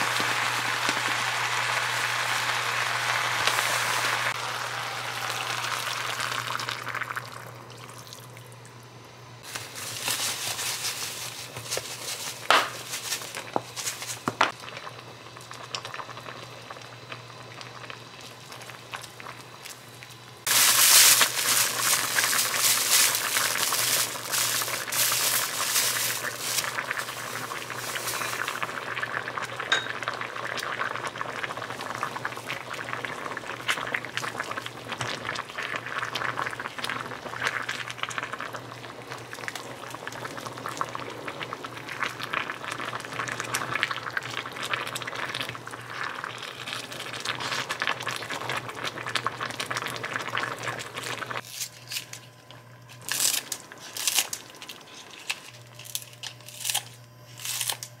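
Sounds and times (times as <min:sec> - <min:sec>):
food sizzling in a hot pan: 0:00.0 - 0:07.4, 0:20.4 - 0:34.6
kitchen utensils clinking: 0:29.7 - 0:30.0.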